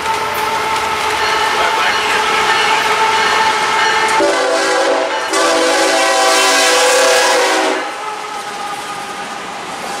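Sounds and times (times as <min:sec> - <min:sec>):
passing train rumble: 0:00.0 - 0:10.0
train horn blasts: 0:00.4 - 0:09.2.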